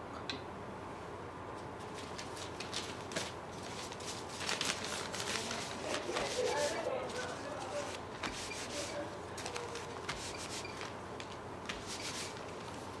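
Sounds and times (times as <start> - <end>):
paper rubbing on paper: 3.7 - 11.0, 11.7 - 12.7.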